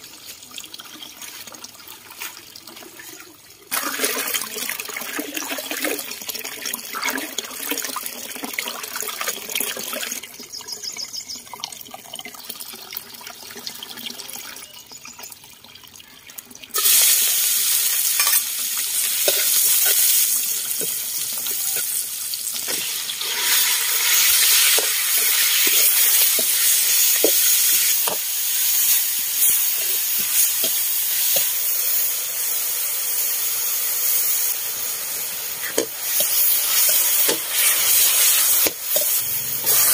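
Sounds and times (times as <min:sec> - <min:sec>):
meat frying: 0:00.0 - 0:10.6, 0:16.7 - 0:39.9
garlic sizzling in hot oil: 0:16.7 - 0:39.9
metal spatula scraping a wok: 0:17.9 - 0:22.0, 0:35.6 - 0:39.9.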